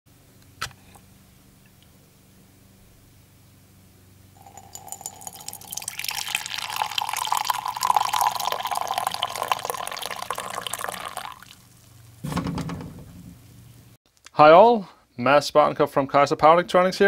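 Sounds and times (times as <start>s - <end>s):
coffee pouring into mug: 4.4s - 11.8s.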